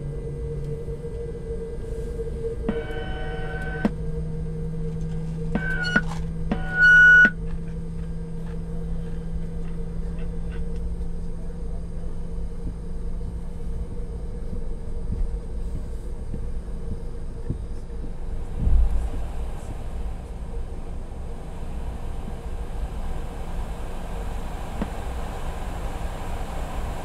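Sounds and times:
aircraft cabin rumble and hum: 0.0s - 27.0s
brief low thump: 18.6s - 19.0s.

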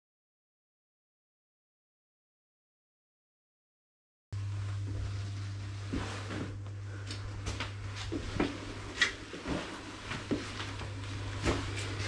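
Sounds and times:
steady low hum: 4.4s - 12.0s
footsteps and light knocks: 4.6s - 12.0s.

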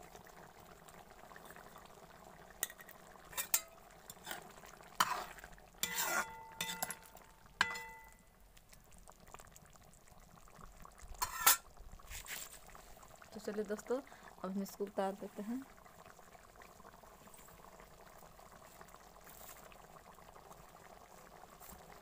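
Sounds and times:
faint simmering: 0.0s - 22.0s
metal spoon scraping metal pan: 2.6s - 8.2s, 11.2s - 11.6s.

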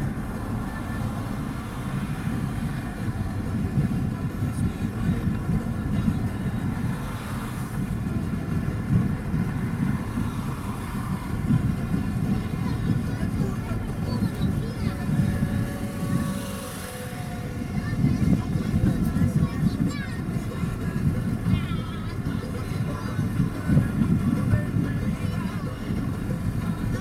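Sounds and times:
road and engine rumble inside vehicle: 0.0s - 27.0s.

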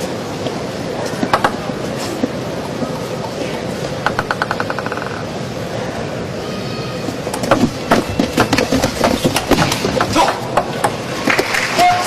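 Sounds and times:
ball hitting paddles and table: 1.2s - 1.8s, 4.0s - 5.3s, 7.4s - 11.6s
table tennis ball bouncing: 1.2s - 1.8s, 4.0s - 5.4s
crowd murmur: 5.3s - 7.9s.

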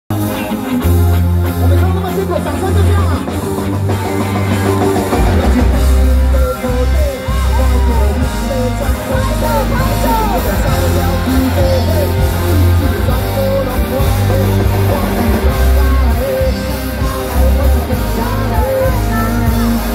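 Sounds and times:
drum kit: 0.1s - 19.9s
electric guitars: 0.1s - 19.9s
heavy bass line: 0.1s - 19.9s
man and woman singing: 5.2s - 19.9s.

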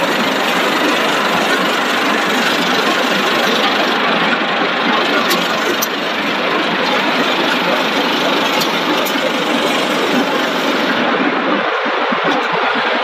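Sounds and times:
production line machinery rushing: 0.0s - 13.0s.

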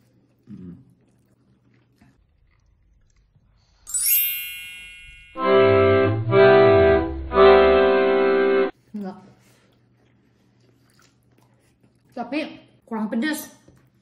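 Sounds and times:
sparkling chime: 3.9s - 6.1s
held organ chords: 5.4s - 8.7s.

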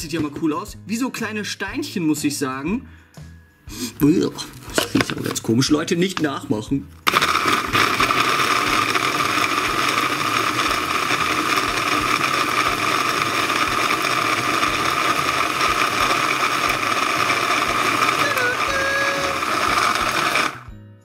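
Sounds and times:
electric food chopper running: 7.1s - 20.7s.

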